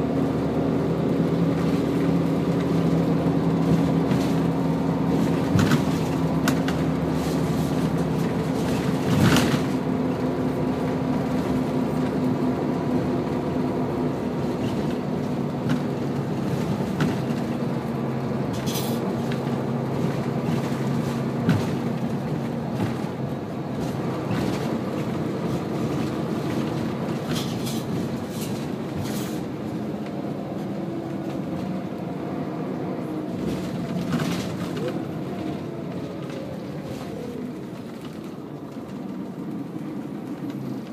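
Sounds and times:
bus engine drone: 0.0 - 40.9
bus body knocks and rattles: 1.4 - 12.2, 14.2 - 17.9, 18.5 - 31.8, 33.2 - 36.0.

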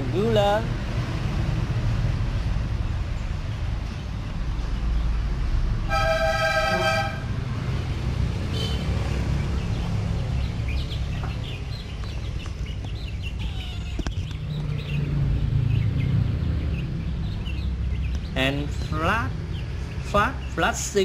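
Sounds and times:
chicks peeping: 10.8 - 15.1.

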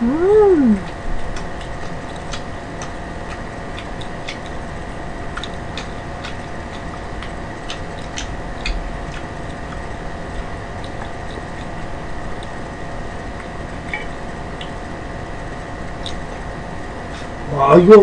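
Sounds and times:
steady background hum: 0.0 - 18.0
chewing fried chicken: 0.7 - 17.5.

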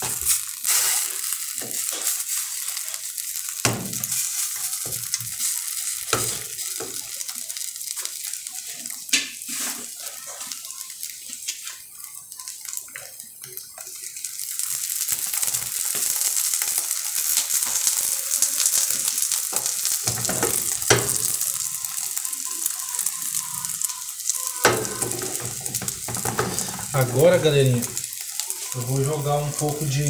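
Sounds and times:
eggs sizzling in a frying pan: 0.0 - 30.0.

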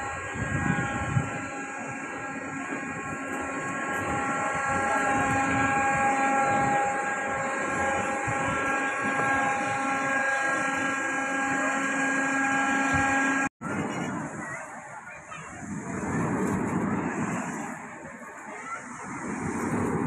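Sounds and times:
ride machinery whine: 0.0 - 20.0.

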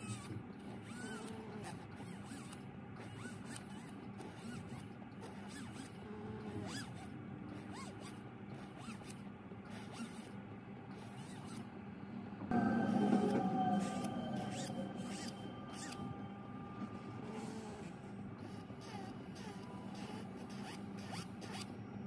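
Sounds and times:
steel tool scraping metal ring: 13.1 - 16.1.

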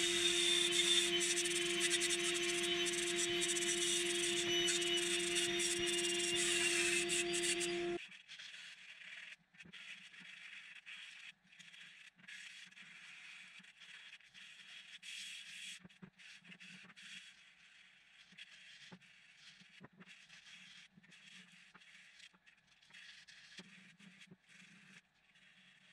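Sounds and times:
sandpaper scraping wood: 0.0 - 8.0.

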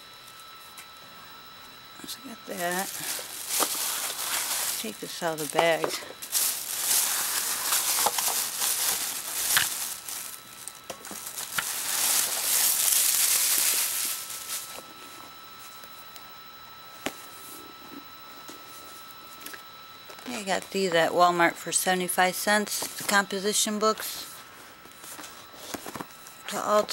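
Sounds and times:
plastic bag rustling: 2.4 - 15.2.

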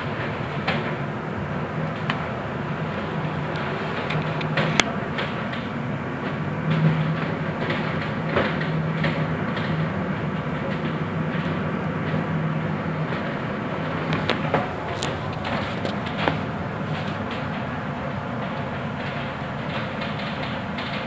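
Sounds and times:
ship engine rumble and hum: 0.0 - 21.0
sharp clicks and rattles: 3.3 - 12.3.

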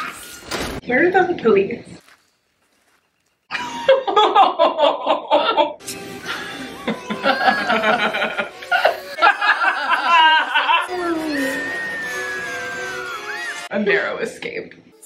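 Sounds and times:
women laughing: 3.5 - 11.1.

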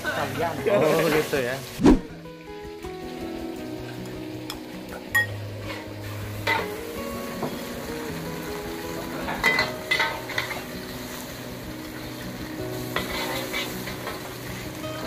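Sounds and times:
egg sizzling in a wok: 0.0 - 15.0
metal ladle scraping a wok: 5.6 - 6.8, 9.4 - 10.7, 12.9 - 14.2.

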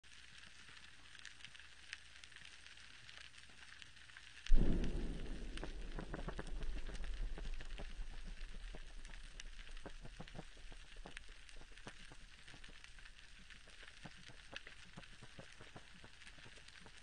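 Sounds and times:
underwater clicks and crackles: 0.1 - 17.0
low underwater rumble: 4.5 - 17.0.

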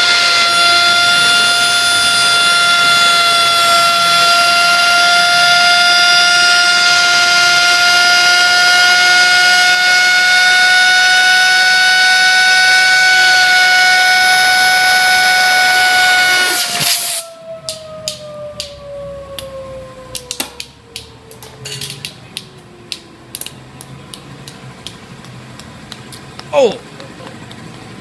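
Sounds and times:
high-pitched whistling whine: 0.0 - 23.7
short air burst: 16.3 - 17.4
compressed air hiss: 16.5 - 17.3
scattered clicks: 20.2 - 27.7.

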